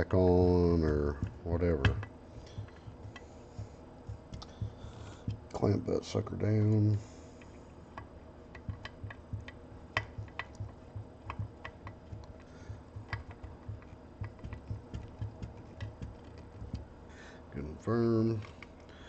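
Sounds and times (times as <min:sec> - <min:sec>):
small metallic clicks and ticks: 0:07.4 - 0:16.8.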